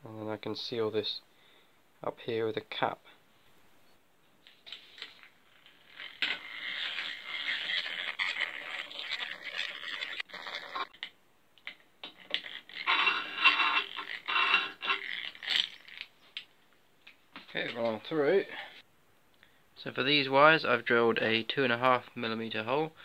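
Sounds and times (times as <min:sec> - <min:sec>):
hand drill grinding through metal: 0:05.5 - 0:11.0, 0:12.0 - 0:16.1.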